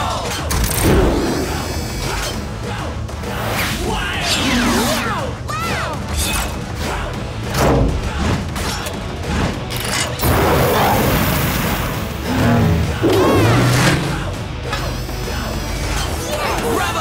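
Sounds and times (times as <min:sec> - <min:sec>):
background music: 0:00.0 - 0:17.0.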